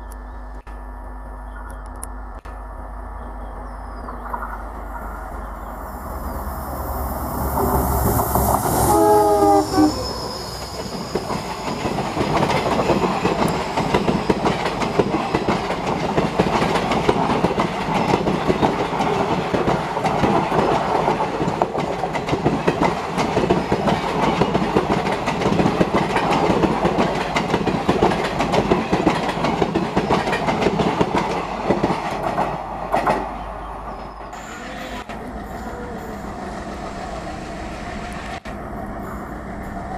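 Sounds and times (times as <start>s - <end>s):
train coaches clattering over rails: 7.5s - 36.3s
train horn: 8.7s - 10.5s, 34.4s - 36.2s.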